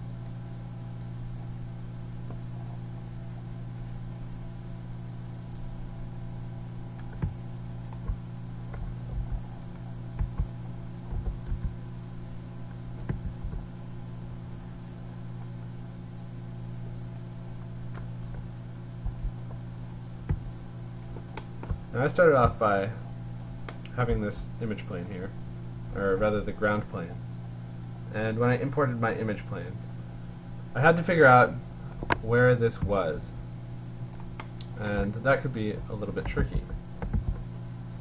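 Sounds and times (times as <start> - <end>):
low electrical hum: 0.0 - 38.0
computer mouse clicks: 7.0 - 12.2, 13.0 - 13.7, 20.2 - 21.8, 36.2 - 37.4
scroll wheel ticks: 10.2 - 12.2.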